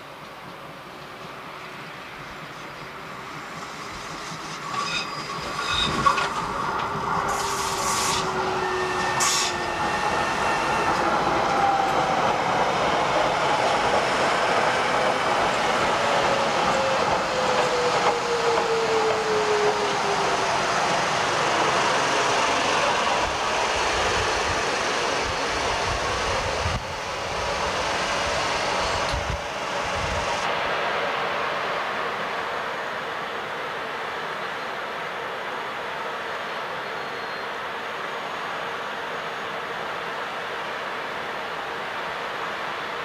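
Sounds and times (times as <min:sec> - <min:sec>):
train running past: 0:00.0 - 0:43.0
wheels squealing: 0:04.5 - 0:06.4.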